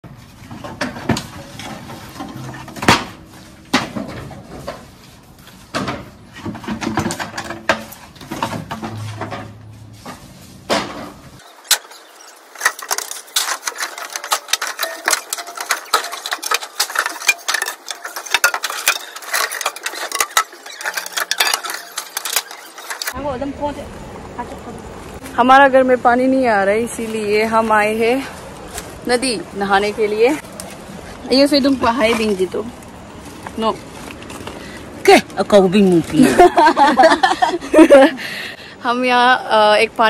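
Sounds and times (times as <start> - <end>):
bamboo poles knocking: 5.7 - 12.0.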